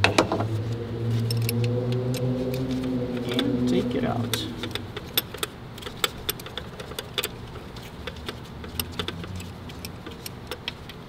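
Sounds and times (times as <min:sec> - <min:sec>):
socket wrench clicking: 0:01.2 - 0:03.6, 0:04.2 - 0:11.0.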